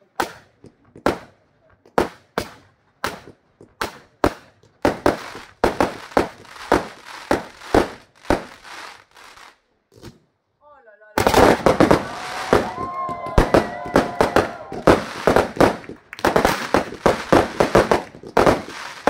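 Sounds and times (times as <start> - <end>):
fireworks bangs: 0.2 - 10.1, 11.2 - 19.0
fireworks crackling fizz: 4.8 - 9.6, 11.2 - 19.0.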